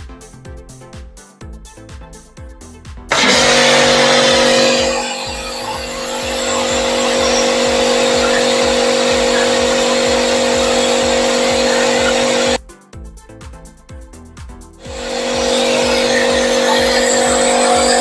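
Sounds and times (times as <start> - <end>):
pressure washer motor hum: 3.1 - 12.6, 14.8 - 18.0.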